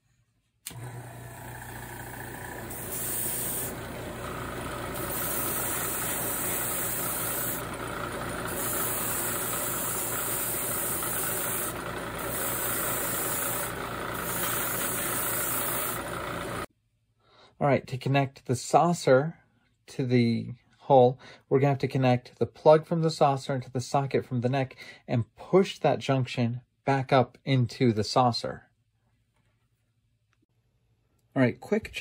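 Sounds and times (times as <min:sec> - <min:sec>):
air compressor humming: 0:00.6 - 0:16.7
airbrush spraying hiss: 0:02.7 - 0:03.8, 0:04.9 - 0:07.7, 0:08.4 - 0:16.7.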